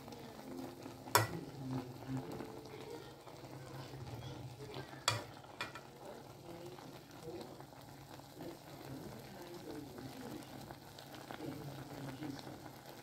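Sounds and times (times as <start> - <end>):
food sizzling in a saucepan: 0.0 - 13.0
wooden spoon knocking on pan: 1.1 - 1.4, 5.0 - 5.9.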